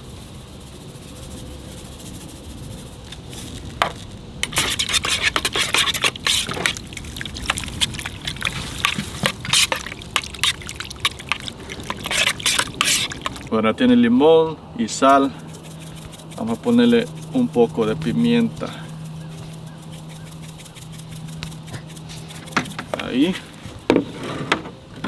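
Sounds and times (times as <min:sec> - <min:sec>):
salt pattering onto wet fish: 0:03.0 - 0:13.5, 0:15.1 - 0:23.6.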